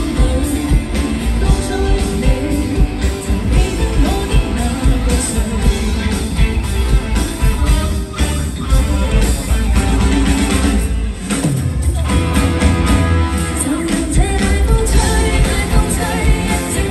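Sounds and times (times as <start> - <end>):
female lead vocal: 0.0 - 6.8, 13.3 - 16.9
live pop band: 0.0 - 16.9.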